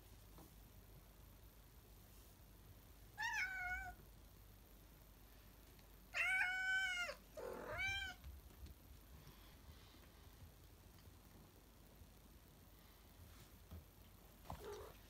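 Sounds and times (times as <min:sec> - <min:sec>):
cat meowing: 0:03.2 - 0:04.0, 0:06.2 - 0:08.2.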